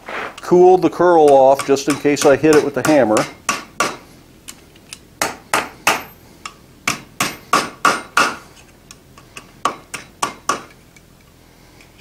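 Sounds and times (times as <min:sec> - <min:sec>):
hammer ringing on anvil: 0:00.7 - 0:04.0.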